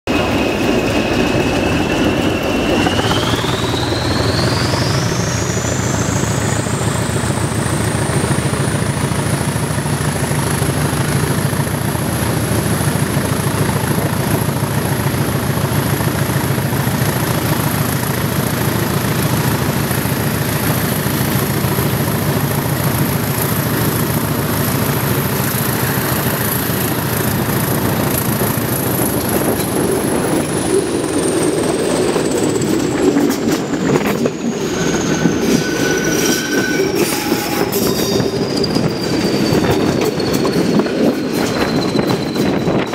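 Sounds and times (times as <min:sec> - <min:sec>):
diesel locomotive engine rumble: 0:00.0 - 0:42.9
turbocharger whistle: 0:01.0 - 0:06.6, 0:34.4 - 0:42.9.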